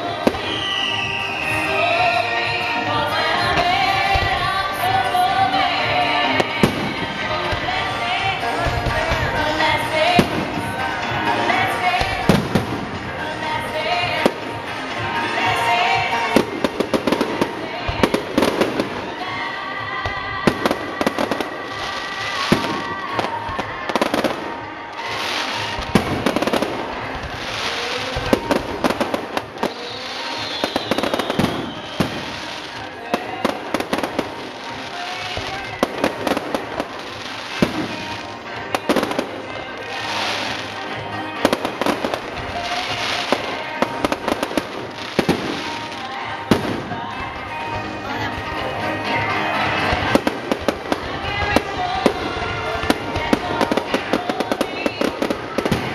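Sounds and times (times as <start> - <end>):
fireworks bangs: 0.0 - 55.9.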